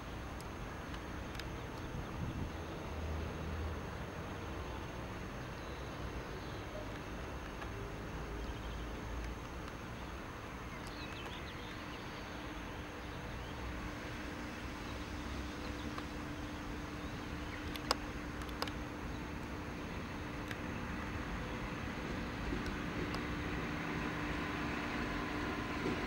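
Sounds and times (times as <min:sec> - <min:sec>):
bird chirping: 0:09.9 - 0:13.7
distant diesel locomotive rumbling: 0:11.7 - 0:26.0
sharp clicks: 0:17.5 - 0:19.6.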